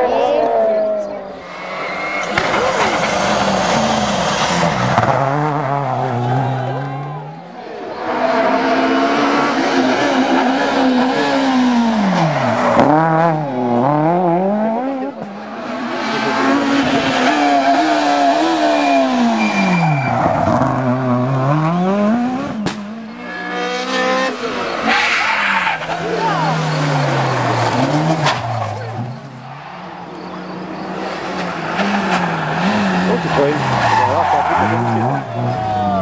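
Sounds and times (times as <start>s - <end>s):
rally car engines revving: 0.0s - 36.0s
sharp crack: 22.6s - 22.9s.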